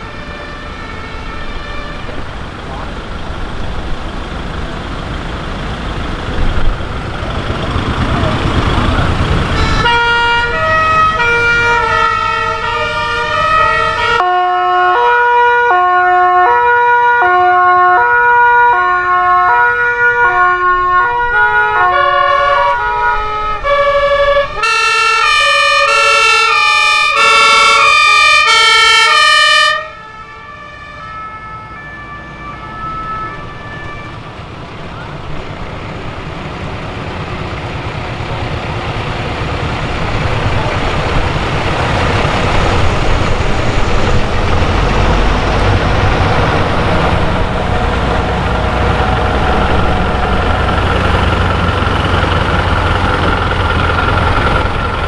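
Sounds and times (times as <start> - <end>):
two-tone siren horn: 0.0 - 2.3, 9.4 - 34.3
fire truck engines passing: 0.0 - 55.0.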